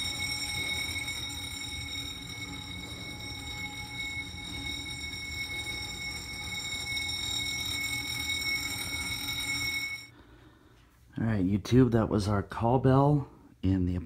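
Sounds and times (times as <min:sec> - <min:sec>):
high-pitched call bell tone: 0:00.0 - 0:10.1
low hum: 0:00.0 - 0:10.6.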